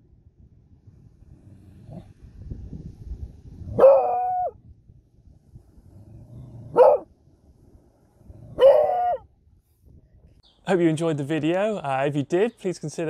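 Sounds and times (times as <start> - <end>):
dog howling: 3.8 - 4.6, 8.6 - 9.2.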